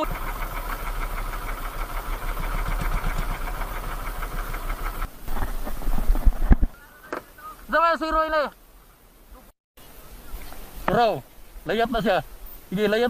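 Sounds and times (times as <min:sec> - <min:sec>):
boat engine chugging: 0:00.0 - 0:05.1.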